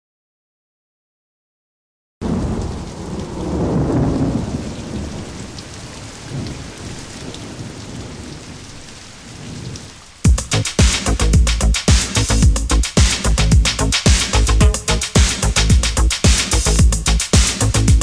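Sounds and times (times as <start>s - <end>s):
rumbling thunder-like noise: 2.2s - 8.7s
electronic drum beat: 10.3s - 18.0s.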